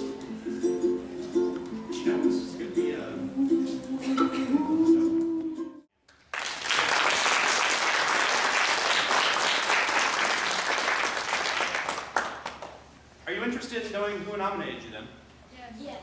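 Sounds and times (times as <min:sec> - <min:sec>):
audience applauding: 0:06.1 - 0:12.8.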